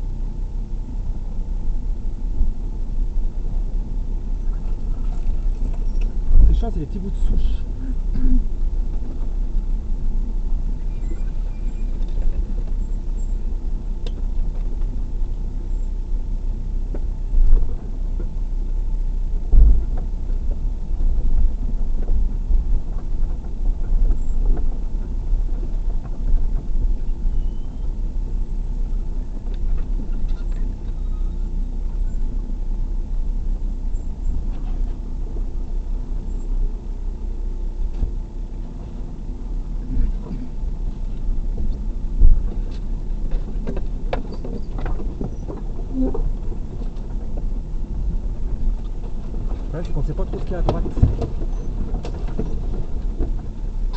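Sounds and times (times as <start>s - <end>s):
car engine running: 0.0s - 53.9s
car knocking over ruts: 37.9s - 53.9s.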